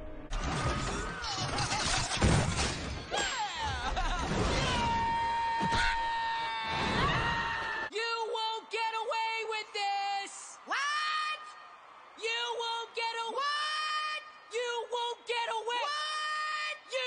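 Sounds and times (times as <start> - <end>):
frantic screaming and commotion: 3.3 - 7.9.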